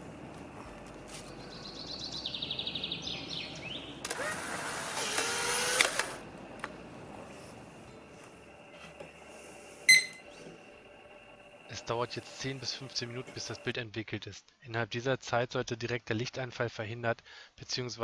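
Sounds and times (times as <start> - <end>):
camera motor whirring: 4.0 - 6.2
camera click: 5.1 - 6.2.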